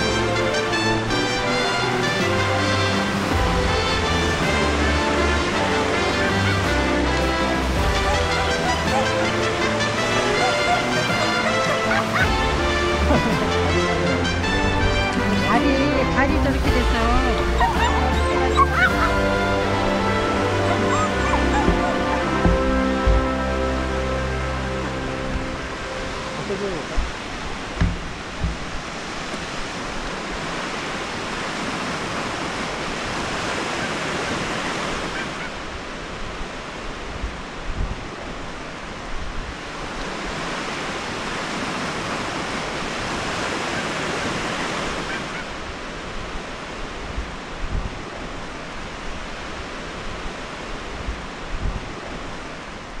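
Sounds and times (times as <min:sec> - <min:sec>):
waves washing onto beach: 0:00.0 - 0:53.0
wind buffeting microphone: 0:45.5 - 0:53.0.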